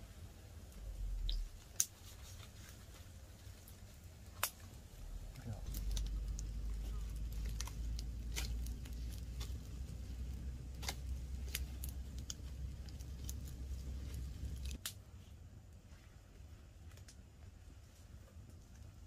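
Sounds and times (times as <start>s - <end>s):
low rumble: 0.0s - 1.7s, 4.5s - 14.8s
wood fire crackling and popping: 0.0s - 19.0s.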